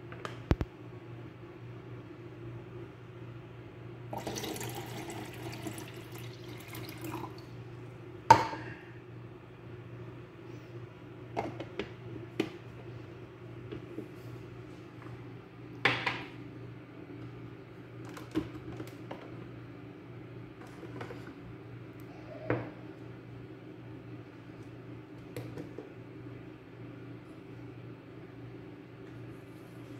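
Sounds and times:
low steady hum: 0.0s - 29.9s
water pouring into a tank: 4.1s - 7.5s.

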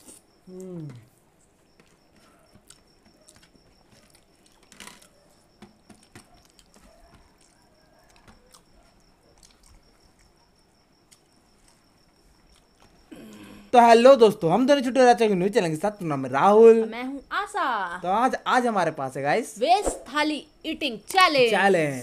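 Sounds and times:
chewing and mouth clicks: 1.7s - 13.1s.

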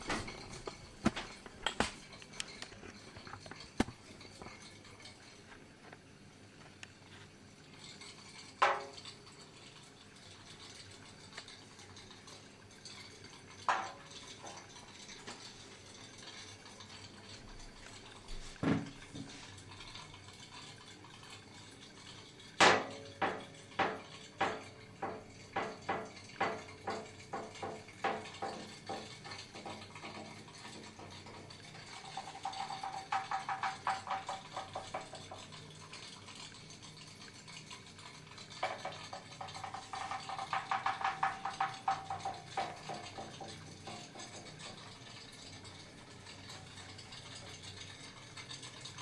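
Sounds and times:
toy steam engine popping: 32.2s - 35.6s, 38.6s - 43.5s.

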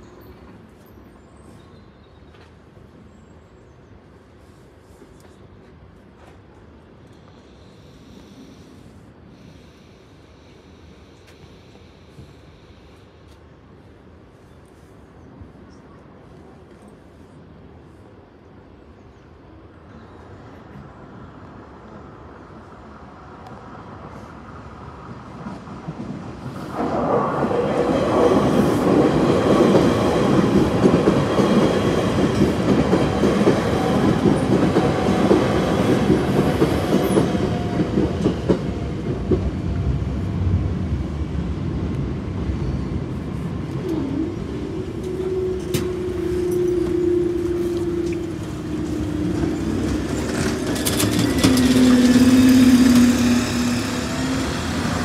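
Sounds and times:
train wheels clattering over joints: 48.8s - 53.3s.

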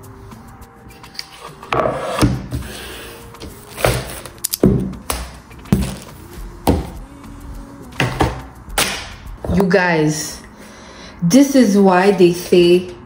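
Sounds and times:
items thunking on countertop: 8.0s - 9.6s.

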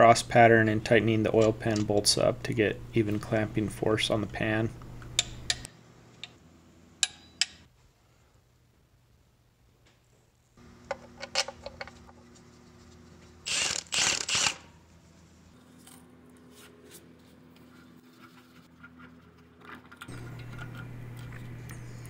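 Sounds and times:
steady low hum: 0.0s - 7.6s, 20.0s - 22.0s.

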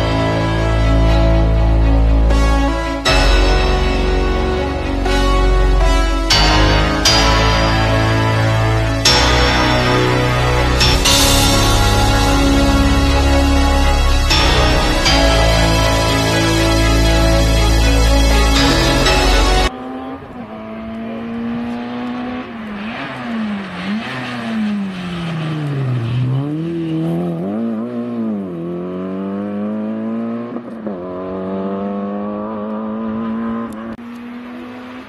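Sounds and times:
music: 0.0s - 19.7s
rally car engine revving: 18.4s - 35.0s.

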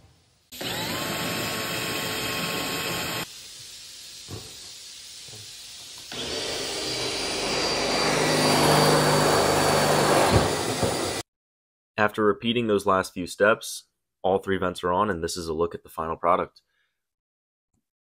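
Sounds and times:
cordless drill boring metal: 0.6s - 11.2s.

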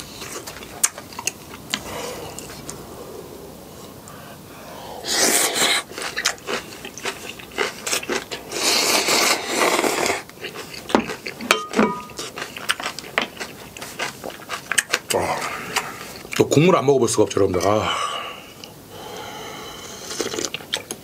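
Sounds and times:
person chewing with lip-smacking: 0.0s - 2.9s, 5.0s - 16.4s, 20.0s - 21.0s
person slurping noodles: 4.6s - 10.3s, 19.0s - 20.6s.

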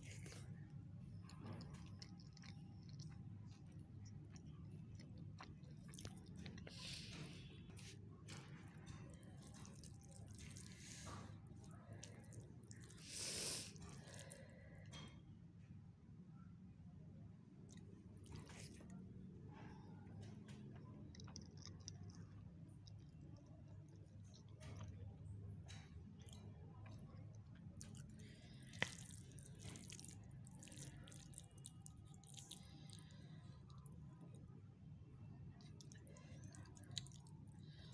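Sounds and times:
low steady hum: 0.0s - 37.9s
fingers squishing rice: 26.2s - 34.1s.

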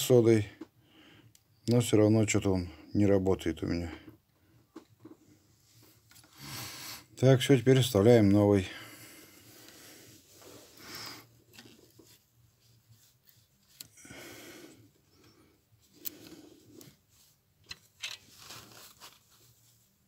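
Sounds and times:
hands rubbing and rustling: 9.4s - 14.0s, 15.0s - 20.0s.

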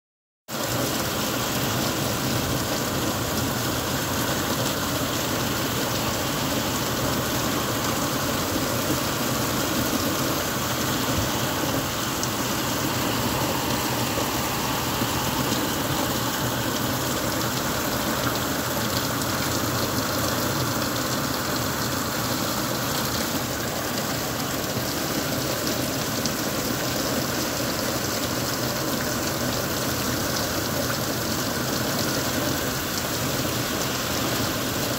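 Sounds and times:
heavy rain on wet pavement: 0.5s - 34.9s.

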